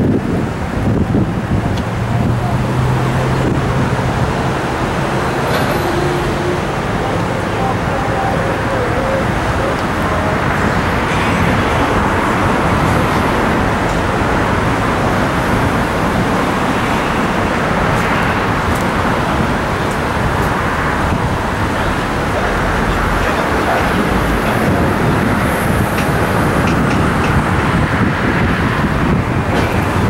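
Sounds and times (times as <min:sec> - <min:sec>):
outdoor rushing noise: 0:00.0 - 0:30.0.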